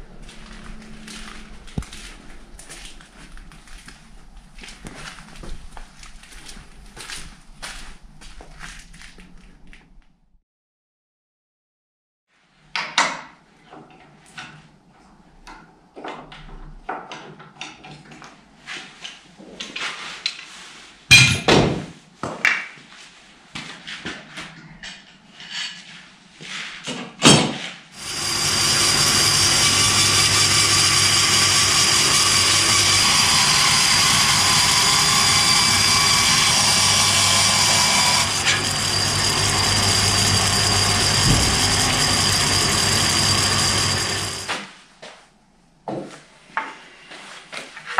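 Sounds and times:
woodworking tools clattering: 26.9s - 44.6s
electric power tool running: 28.0s - 44.7s.

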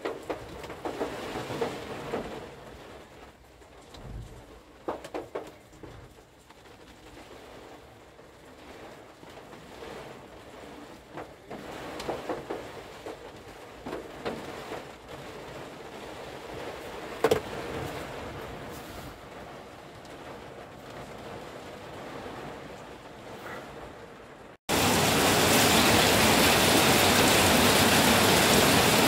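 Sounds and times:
rain on car roof: 0.0s - 29.0s
sharp knocks: 17.2s - 17.6s.

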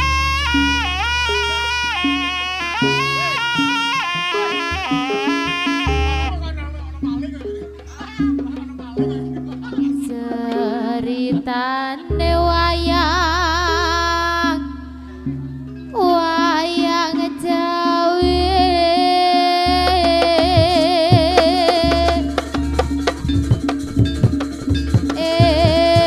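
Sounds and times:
low drone and bass: 0.0s - 3.6s, 5.5s - 9.4s, 12.1s - 16.0s
lead melody with vibrato: 0.0s - 26.0s.

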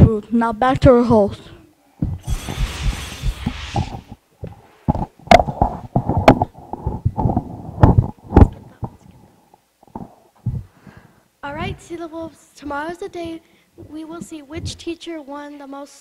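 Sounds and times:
microphone handling knocks: 2.0s - 2.2s, 3.8s - 9.0s, 9.9s - 10.7s
whooshing sound effect: 2.2s - 4.2s.

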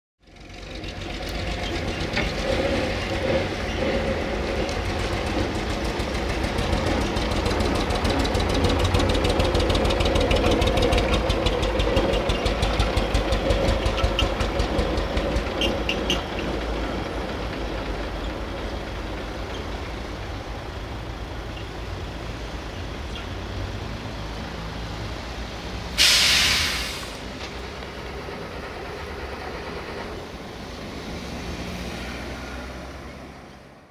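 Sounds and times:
rapid ticking engine clatter: 0.2s - 21.4s
diesel truck driving past: 0.2s - 33.9s
air brakes hiss: 25.9s - 27.4s.

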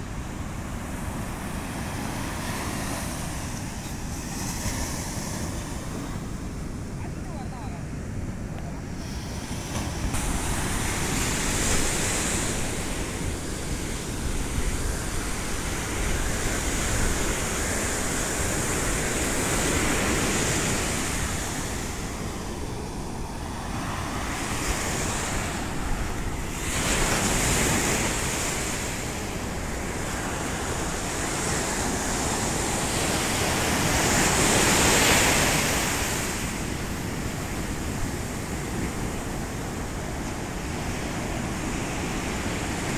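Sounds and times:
sea surf breaking on shore: 0.0s - 42.9s.

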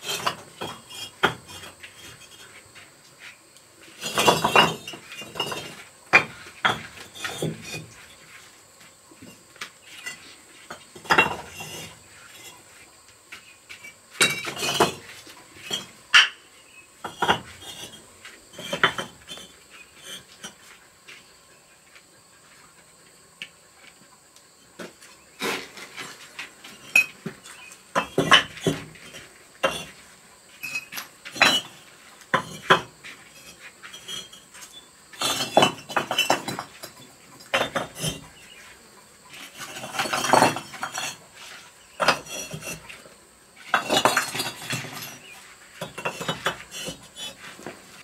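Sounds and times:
clay bricks clinking and knocking: 0.0s - 2.6s, 3.9s - 8.0s, 10.0s - 12.6s, 13.8s - 16.4s, 17.0s - 20.6s, 24.8s - 30.0s, 30.6s - 34.5s, 35.2s - 38.5s, 39.3s - 41.2s, 41.9s - 48.0s.

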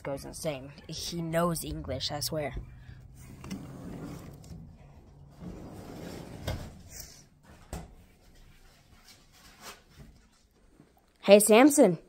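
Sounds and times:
door opening and closing: 2.6s - 8.0s.

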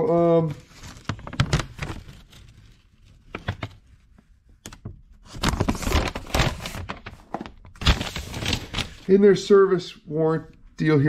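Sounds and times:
paper rustling and crinkling: 0.0s - 4.2s, 4.8s - 9.2s.

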